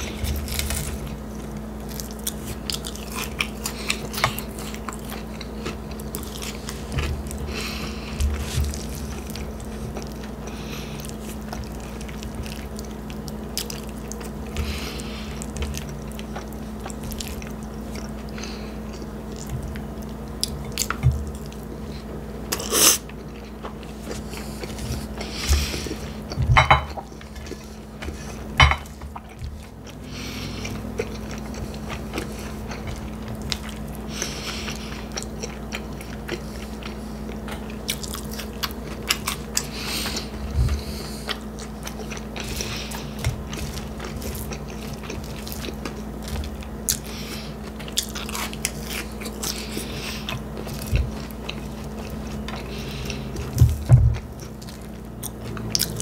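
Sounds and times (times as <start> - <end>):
person chewing and biting food: 0.0 - 56.0.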